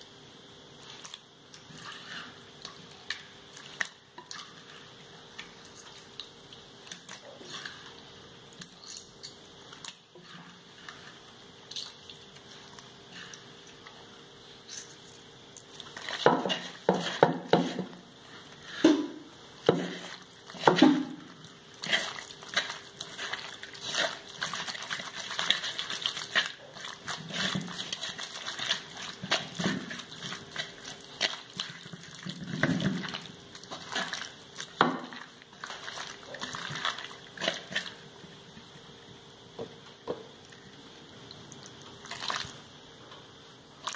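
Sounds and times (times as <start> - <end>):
hand squishing prawns: 21.8 - 32.4, 33.0 - 38.0, 42.0 - 42.6.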